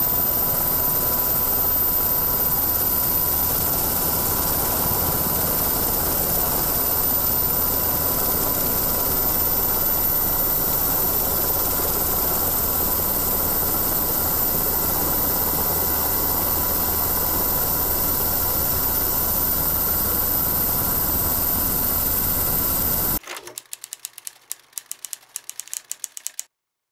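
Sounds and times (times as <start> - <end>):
faint steady whine: 0.0 - 23.2
helicopter engine and rotor drone: 0.0 - 23.2
sharp clicks: 23.2 - 26.5.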